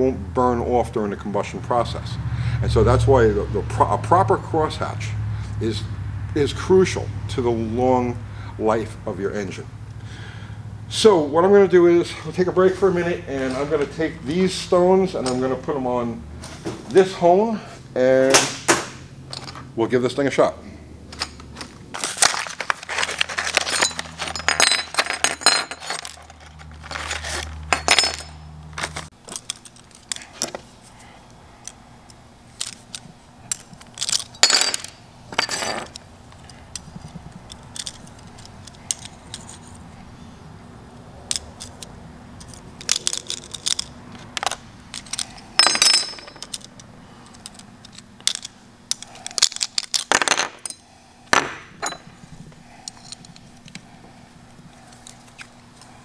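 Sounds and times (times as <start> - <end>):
metal clinks and rattles: 19.3 - 19.7, 21.1 - 30.6, 32.5 - 39.9, 41.2 - 53.8
packaging rustle: 22.0 - 24.4.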